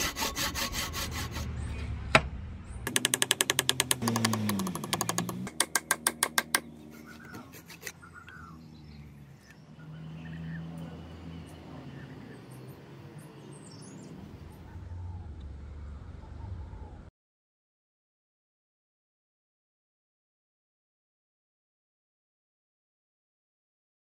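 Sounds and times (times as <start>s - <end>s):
hammer tapping on wood: 2.9s - 6.7s
small birds chirping: 6.2s - 15.4s.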